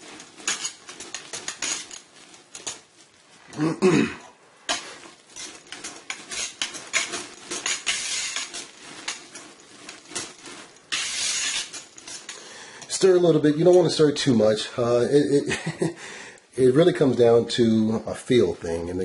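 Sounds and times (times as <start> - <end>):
whisk scraping metal pot: 0.0 - 2.9, 4.7 - 14.0.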